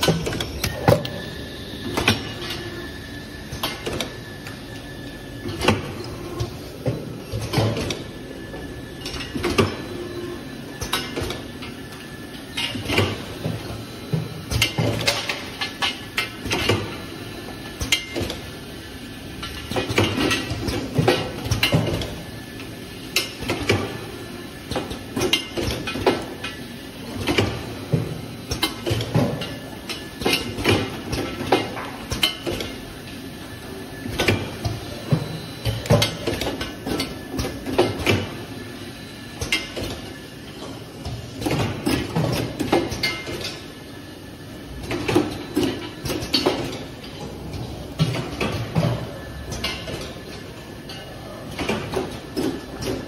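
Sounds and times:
faint steady machine tone: 0:07.6 - 0:18.2.

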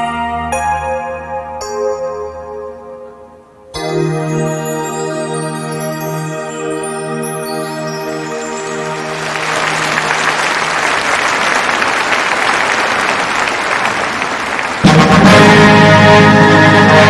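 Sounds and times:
symphony orchestra playing: 0:08.2 - 0:17.0
audience applauding: 0:08.8 - 0:15.6.

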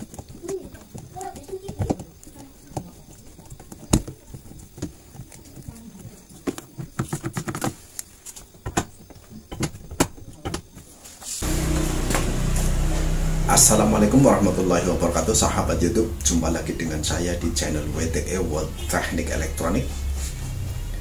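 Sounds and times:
steady hum and hiss: 0:11.0 - 0:21.0.

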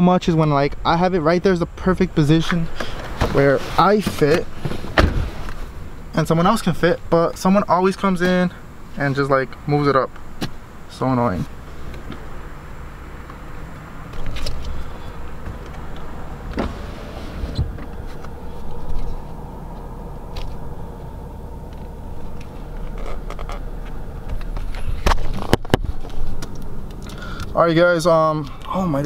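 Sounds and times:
low rumble: 0:10.8 - 0:29.0.

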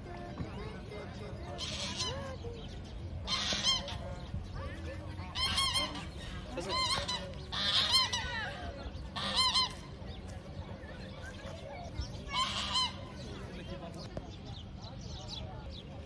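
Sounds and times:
geese honking: 0:03.3 - 0:04.0, 0:05.3 - 0:09.8, 0:12.3 - 0:13.0.

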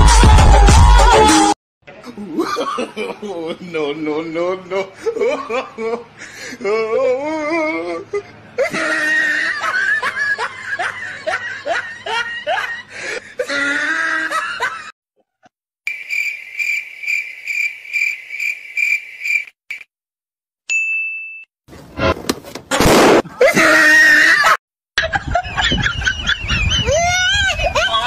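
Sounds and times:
person laughing heartily: 0:02.0 - 0:03.4, 0:04.8 - 0:15.4, 0:23.2 - 0:28.0
high cricket chirps: 0:15.9 - 0:19.8.

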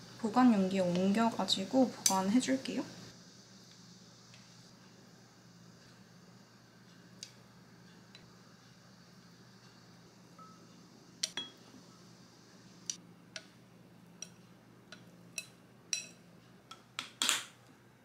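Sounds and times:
chopsticks tapping a glass jar: 0:11.2 - 0:11.6.

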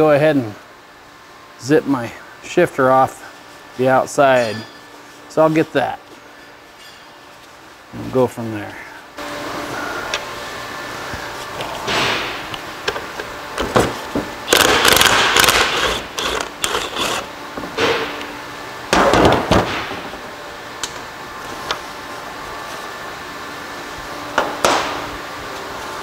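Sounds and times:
impact wrench rattling: 0:14.5 - 0:17.2.

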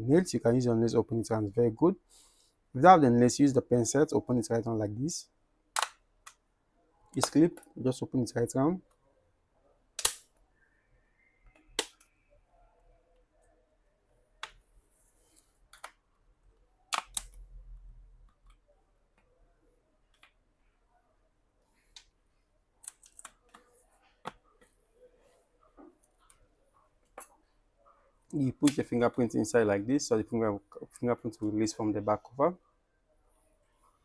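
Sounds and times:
plastic clips snapping: 0:10.0 - 0:10.3.

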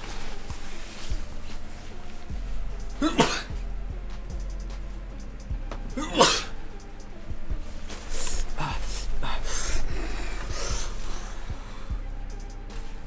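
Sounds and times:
background music: 0:00.0 - 0:13.0
breathy groans and gasps: 0:08.1 - 0:12.0.

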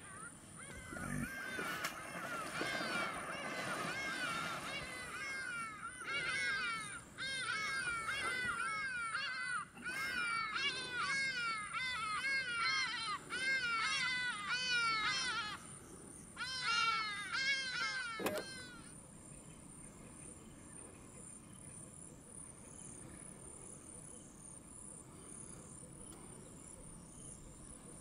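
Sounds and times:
animal calls: 0:00.0 - 0:15.4.

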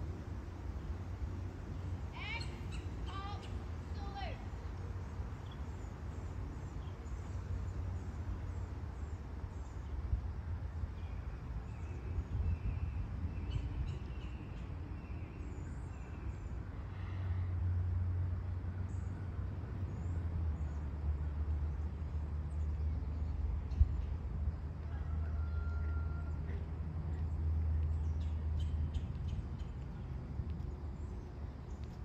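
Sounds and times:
steady low rumble: 0:26.3 - 0:32.0.

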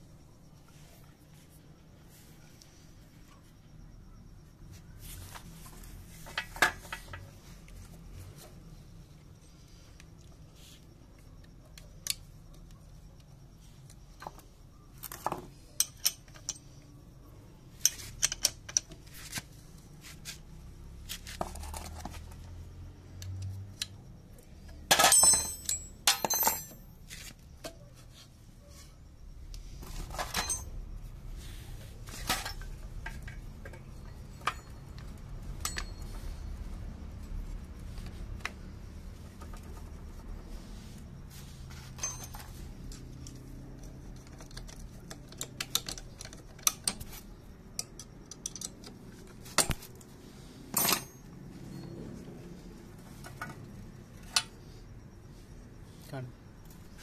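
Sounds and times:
metal tools clinking: 0:15.3 - 0:16.8, 0:17.8 - 0:19.0, 0:24.9 - 0:27.2, 0:29.9 - 0:30.8, 0:32.0 - 0:36.4, 0:41.7 - 0:49.9, 0:50.7 - 0:52.2.

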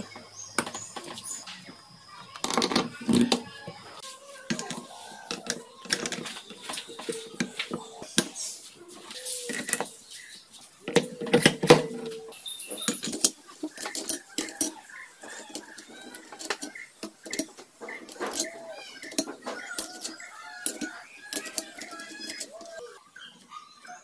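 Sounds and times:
metallic clatter and ring: 0:12.4 - 0:22.8
metal parts clinking and knocking: 0:12.7 - 0:22.8.

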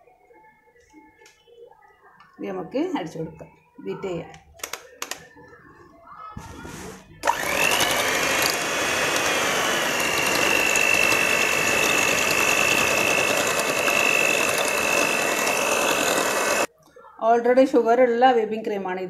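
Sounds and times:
electric hand mixer whining: 0:07.2 - 0:16.7.

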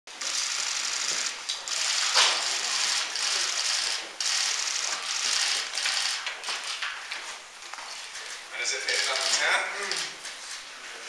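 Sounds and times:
camera shutters clattering: 0:01.1 - 0:07.0, 0:08.9 - 0:10.6.

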